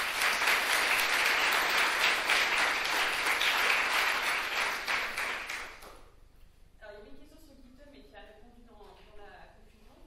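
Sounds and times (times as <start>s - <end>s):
audience applauding: 0.0s - 6.0s.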